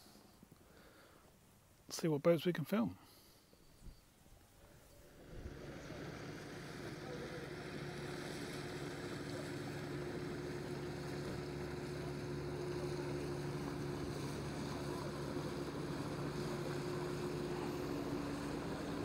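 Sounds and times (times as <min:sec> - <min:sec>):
boat engine humming: 0:04.4 - 0:19.0.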